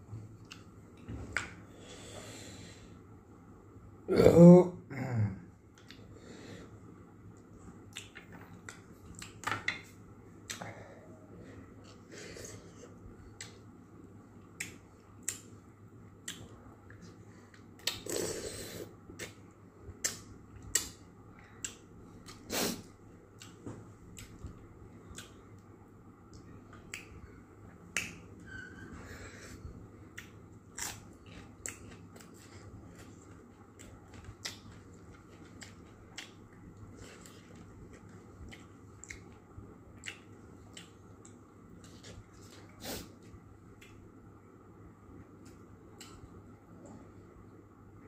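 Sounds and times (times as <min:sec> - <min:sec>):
chewing smacks: 0:30.1 - 0:42.8.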